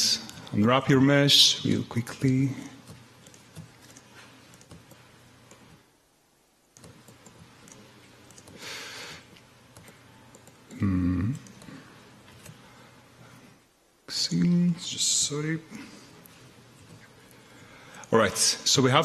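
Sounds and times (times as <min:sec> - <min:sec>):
laptop keyboard and trackpad clicks: 0:06.8 - 0:08.6.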